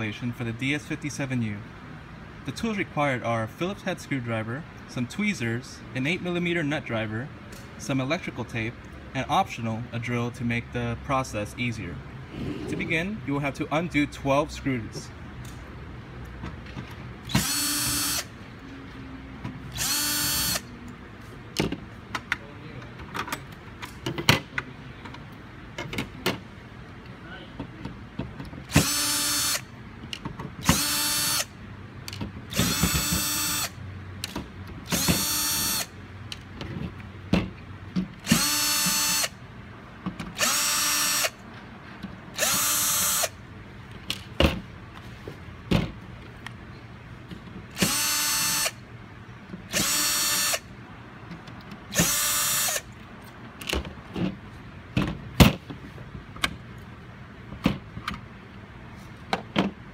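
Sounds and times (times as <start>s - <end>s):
cordless drill whining: 17.3s - 18.3s, 19.7s - 20.7s, 28.7s - 29.6s, 30.6s - 31.5s, 32.5s - 33.8s, 34.9s - 35.9s, 38.2s - 39.3s, 40.4s - 41.4s, 42.4s - 43.4s, 47.7s - 48.8s, 49.7s - 50.7s, 51.9s - 52.8s.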